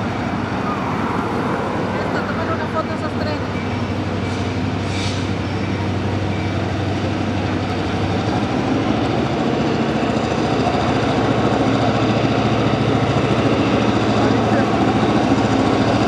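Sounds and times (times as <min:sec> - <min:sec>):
diesel locomotive idling: 0:00.0 - 0:16.0
rail car diesel engines running: 0:00.0 - 0:16.0.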